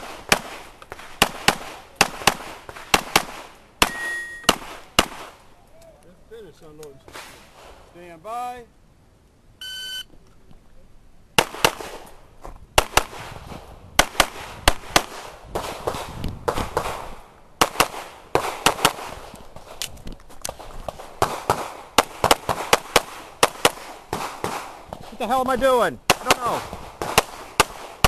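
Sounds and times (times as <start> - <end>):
pistol shots: 0.0 - 5.4, 11.4 - 12.1, 12.8 - 13.3, 14.0 - 19.3, 20.5 - 25.1, 26.1 - 28.0.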